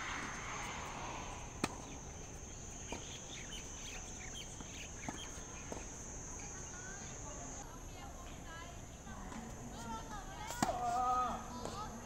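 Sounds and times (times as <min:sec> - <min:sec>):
tennis ball hitting racket: 0:01.5 - 0:03.2.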